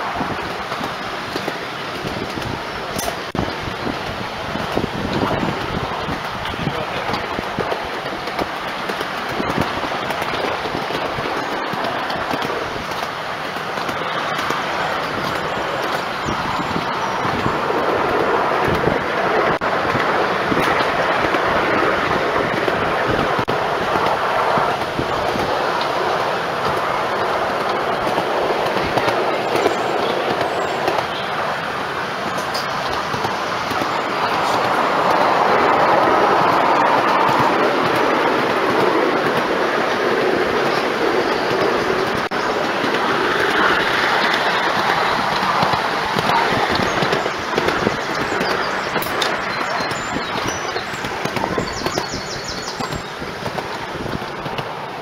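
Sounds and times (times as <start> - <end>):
miniature train rumbling: 0.0 - 55.0
small wheels clattering on rails: 0.0 - 55.0.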